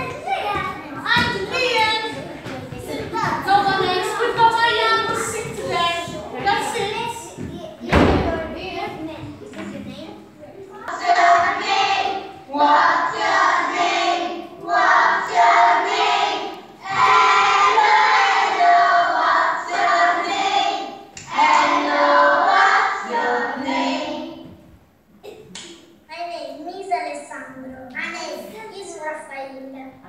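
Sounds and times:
children singing together: 10.9 - 24.6.

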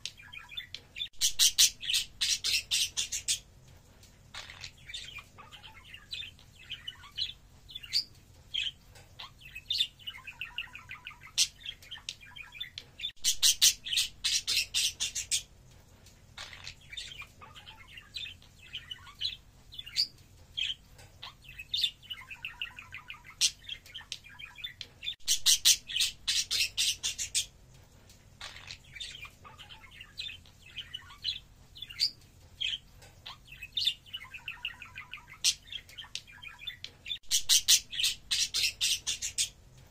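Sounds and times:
budgerigars chattering and warbling: 0.2 - 3.4, 4.3 - 15.4, 16.4 - 27.5, 28.4 - 39.6.

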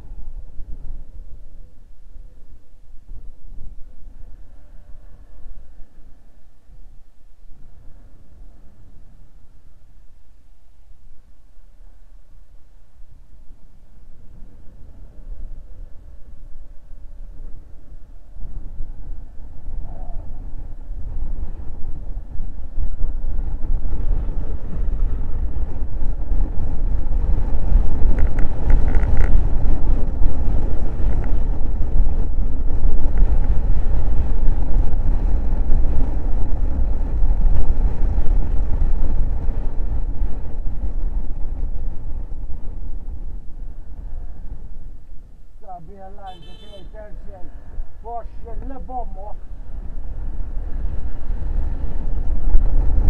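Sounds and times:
road and engine noise: 0.0 - 53.0
wind buffeting microphone: 11.0 - 53.0.

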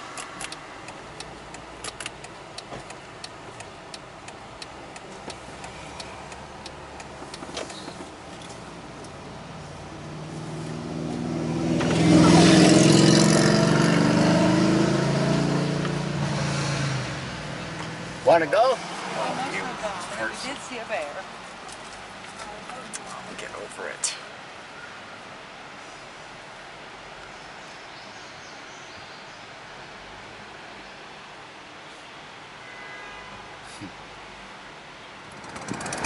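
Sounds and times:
car engine and road noise: 0.0 - 36.0
passing vehicle rushing: 5.4 - 21.4.

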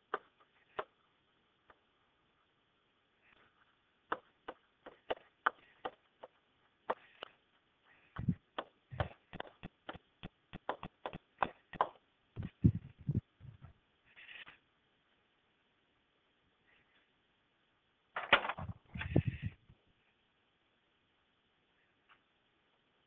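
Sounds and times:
pen tapping on whiteboard: 8.2 - 12.0.

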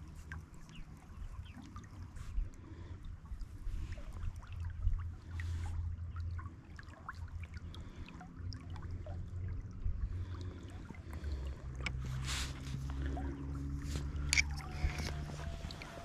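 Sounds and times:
river running over gravel: 11.0 - 16.0.

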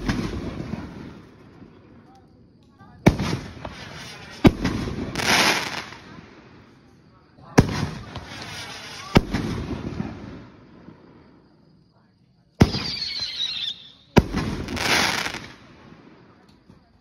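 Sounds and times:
firework crackling: 0.0 - 6.8, 7.6 - 11.1, 12.6 - 16.3
falling whistle: 12.8 - 14.1.

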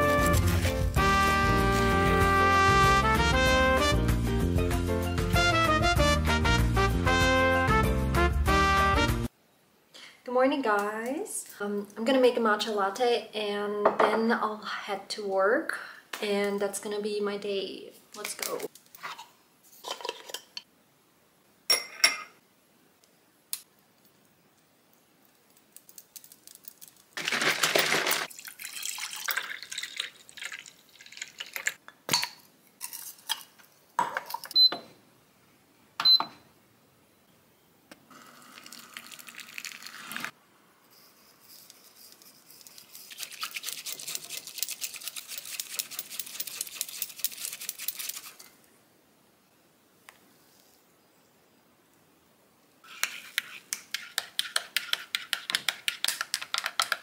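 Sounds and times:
cup clinking: 21.7 - 22.4
liquid pouring: 27.2 - 31.8, 38.2 - 40.3
rapid fine whisking strokes: 40.9 - 48.5.

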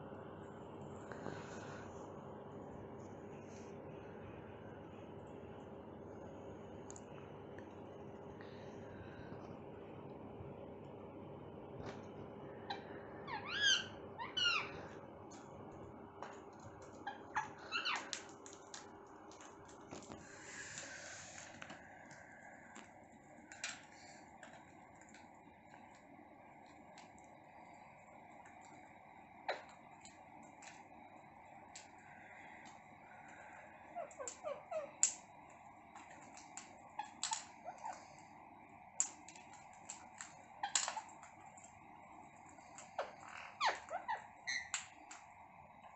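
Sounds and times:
parakeets squawking: 12.7 - 14.9, 17.1 - 18.2, 34.0 - 35.2, 37.0 - 38.1, 40.6 - 41.2, 42.8 - 45.1
beaks tapping on plastic and tile: 16.2 - 22.9, 23.5 - 26.0, 29.5 - 30.8, 34.0 - 38.2, 38.9 - 41.7, 42.5 - 45.3
beaks pecking plastic tray: 35.9 - 38.2, 38.9 - 41.7.

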